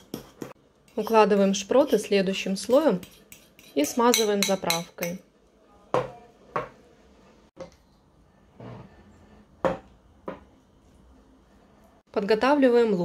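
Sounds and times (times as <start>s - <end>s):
spatula scraping dish: 0.0s - 4.8s, 8.5s - 9.4s.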